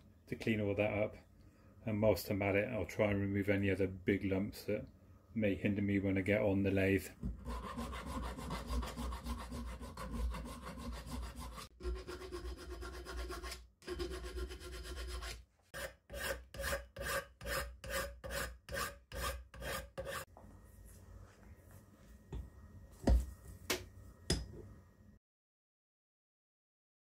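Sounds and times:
file rasping on metal: 7.4s - 20.3s.

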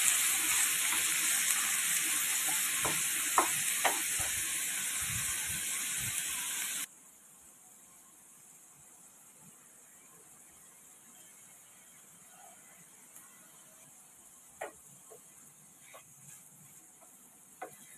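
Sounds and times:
vegetables sizzling in a wok: 0.0s - 6.9s, 13.5s - 17.9s
wooden spatula scraping: 15.8s - 17.9s.

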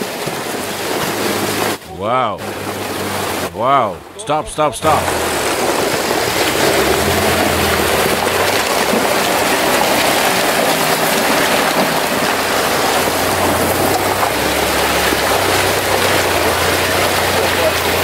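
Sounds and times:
off-road vehicle engine running: 0.0s - 18.0s
tyres churning muddy water: 0.0s - 18.0s.

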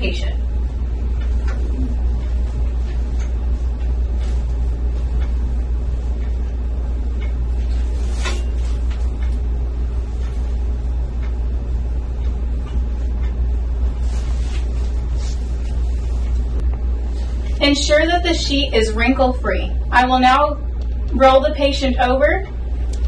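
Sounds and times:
steady low hum: 0.0s - 23.0s
bed sheet rustling: 7.6s - 9.2s, 14.0s - 17.8s.

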